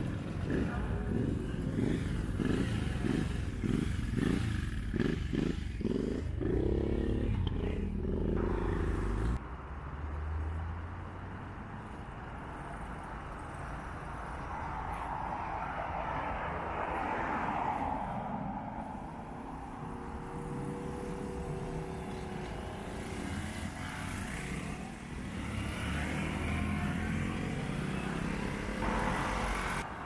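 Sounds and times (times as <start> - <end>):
motorcycle engines accelerating: 0.0 - 9.4, 19.5 - 29.9.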